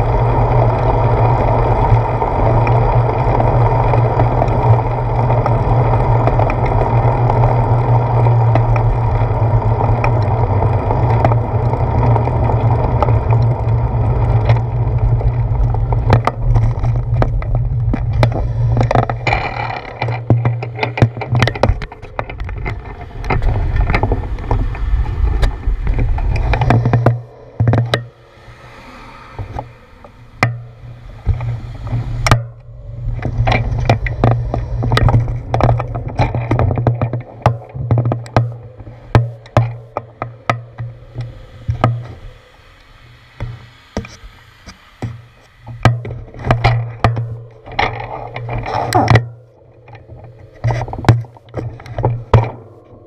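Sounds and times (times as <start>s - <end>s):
low steady hum: 0.0s - 53.0s
wind noise on microphone: 0.0s - 53.0s.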